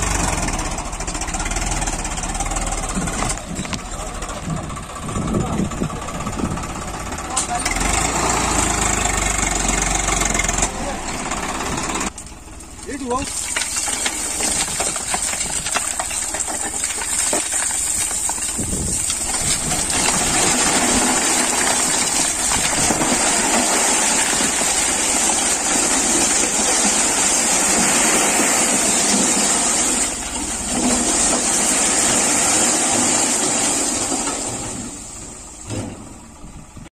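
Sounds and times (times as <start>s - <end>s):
tractor engine running: 0.0s - 36.9s
stone and soil tumbling onto rocks: 12.1s - 36.0s.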